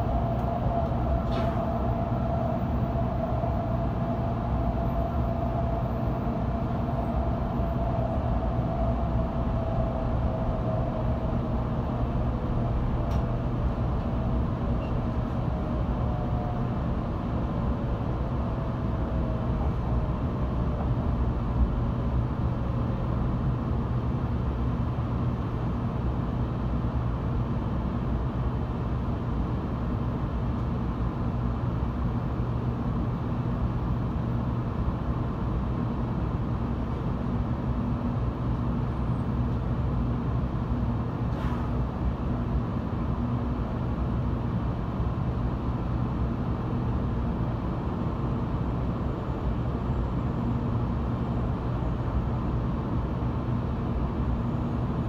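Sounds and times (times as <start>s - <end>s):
train cabin rumble: 0.0s - 24.4s
steady hum: 0.0s - 55.0s.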